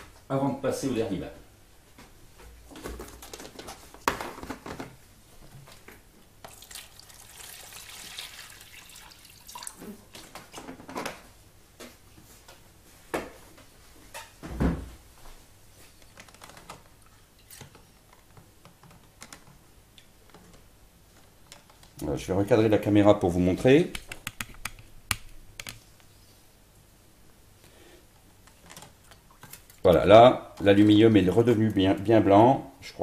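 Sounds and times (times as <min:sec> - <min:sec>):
plastic tubs knocking: 0:02.7 - 0:05.0
water splashing in tubs: 0:06.5 - 0:10.2.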